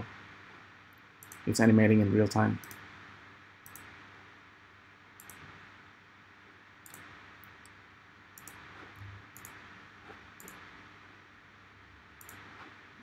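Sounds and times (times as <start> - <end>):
low steady hiss: 0.0 - 13.0
mouse and keyboard clicks: 3.6 - 3.9, 5.2 - 5.5, 6.8 - 7.8, 8.4 - 8.6, 9.4 - 9.6, 10.4 - 10.6, 12.2 - 12.6.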